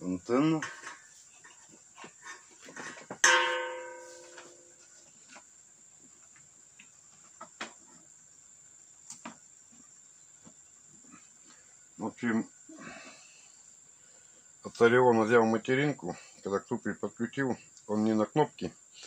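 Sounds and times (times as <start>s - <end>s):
sharp ringing note: 3.2s - 4.8s.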